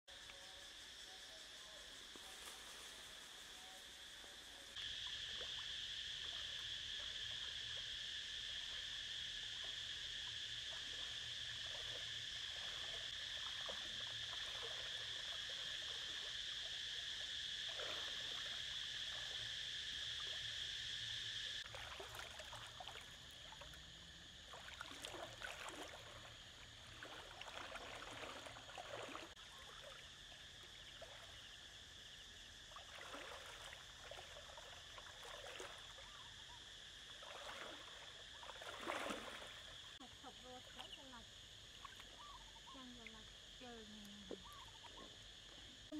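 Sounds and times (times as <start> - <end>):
high-pitched insect drone: 0.1 - 45.9
person wading through water: 8.5 - 20.6, 21.6 - 31.6, 32.6 - 40.9.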